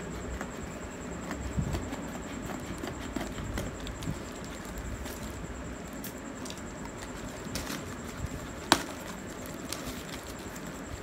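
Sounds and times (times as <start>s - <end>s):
cardboard rustling: 6.4s - 11.0s.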